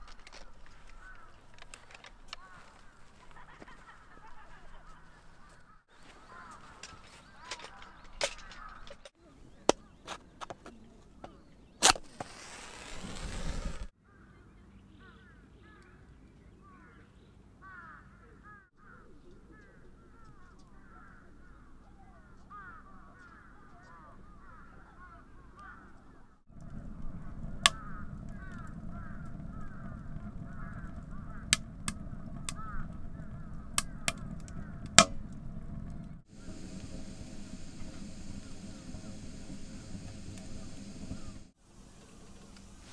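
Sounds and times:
wood fire crackling and popping: 0.0 - 3.4, 26.5 - 42.9
flock of birds calling: 0.0 - 10.2, 17.6 - 42.9.

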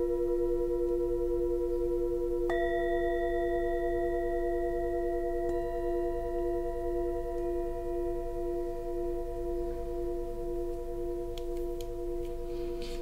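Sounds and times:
singing bowls ringing: 0.0 - 13.0
mallet striking singing bowl: 2.5 - 6.4.

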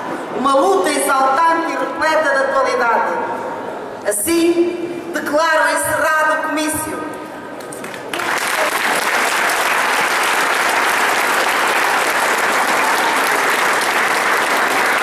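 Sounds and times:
crowd applauding: 7.6 - 15.0.

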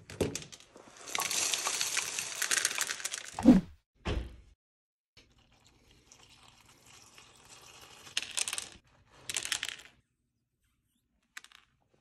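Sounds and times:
milk pouring into a bowl: 5.2 - 8.2.

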